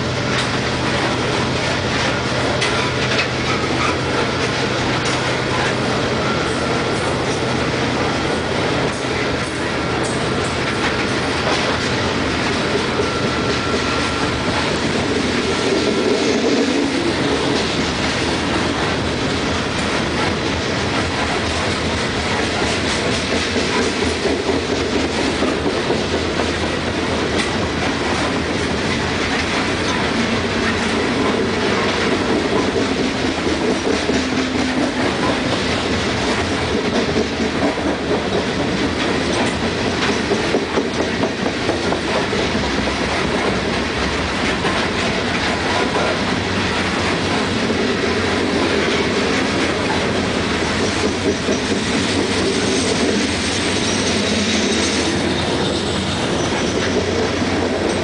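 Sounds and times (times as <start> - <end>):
freight train rumbling past: 0.0 - 58.0
wheels clicking over rail joints: 0.2 - 58.0
faint high wheel squeal: 6.1 - 6.9, 12.9 - 14.6, 53.4 - 57.2.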